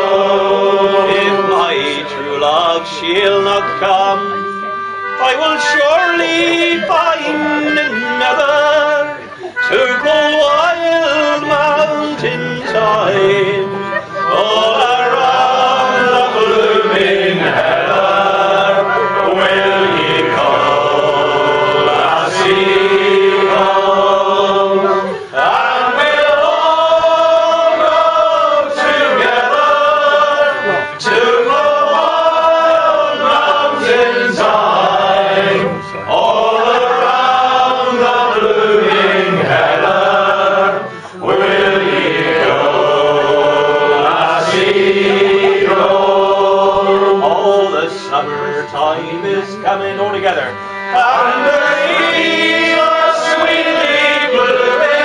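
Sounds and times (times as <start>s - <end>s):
voices singing slow song: 0.0s - 55.0s.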